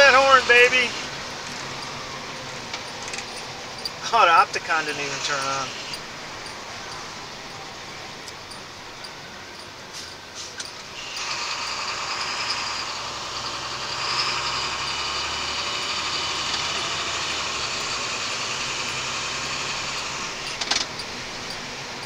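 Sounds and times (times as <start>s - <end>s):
low engine drone: 0.0s - 22.0s
loud high hissing noise: 4.1s - 8.2s, 9.9s - 22.0s.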